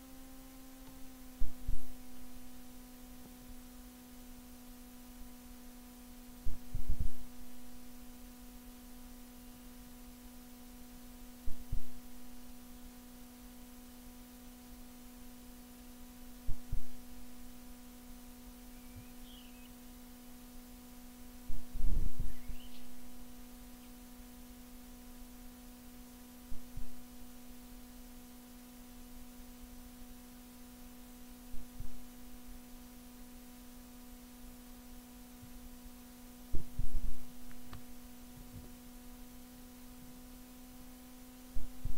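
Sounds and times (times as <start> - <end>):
low electrical hum: 0.0 - 41.9.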